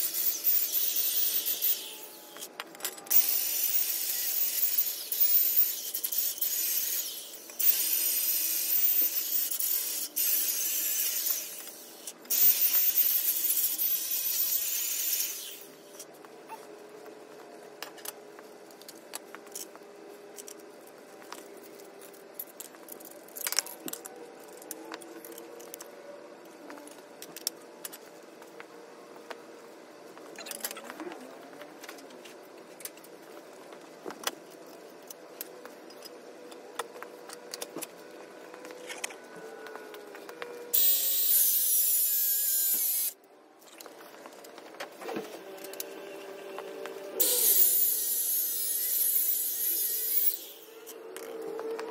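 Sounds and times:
power tool cutting metal: 0.0s - 16.0s, 40.7s - 43.2s, 45.3s - 51.8s.

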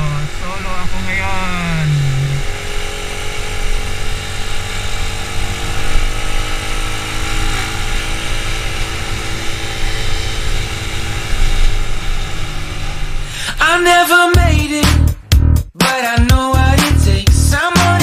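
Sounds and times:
road noise: 0.0s - 15.3s
motorcycle engine running: 0.0s - 15.6s.

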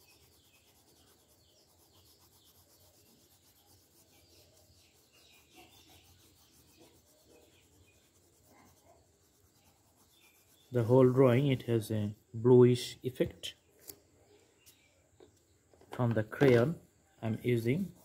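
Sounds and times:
colored pencil scratching on paper: 0.0s - 12.3s, 17.6s - 18.0s.

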